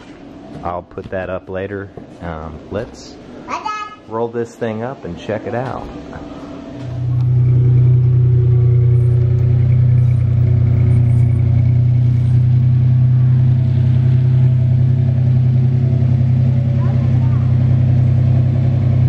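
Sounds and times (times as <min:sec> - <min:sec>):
vehicle engine running: 0:05.1 - 0:19.0.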